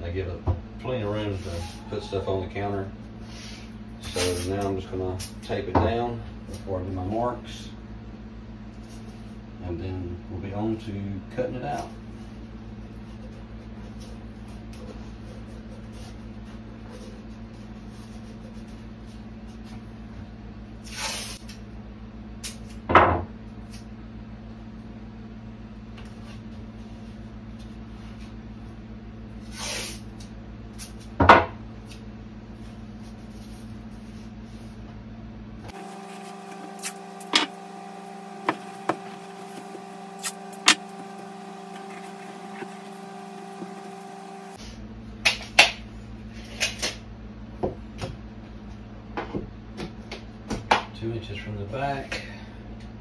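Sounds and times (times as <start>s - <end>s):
low hum: 30.2s - 45.2s
tape ripping: 36.0s - 37.5s, 38.7s - 44.0s.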